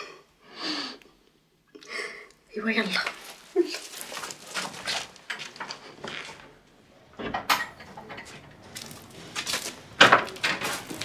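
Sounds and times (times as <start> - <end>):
rustling: 2.8 - 6.8, 7.8 - 11.0.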